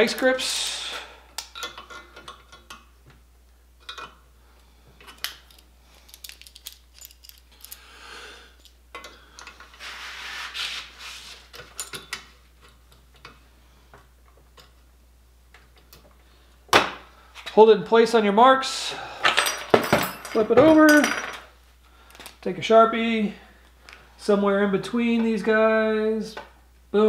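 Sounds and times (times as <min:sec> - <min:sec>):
locking pliers clinking on steel: 0:05.1 - 0:07.8
metal scraping rustles: 0:09.6 - 0:12.1.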